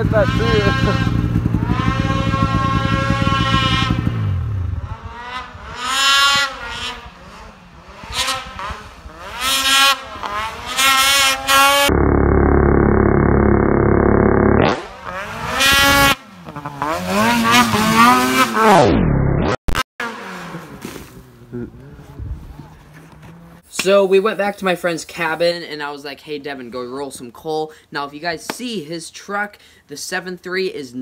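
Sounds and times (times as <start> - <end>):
snowmobile engine revving: 0.0 - 23.7.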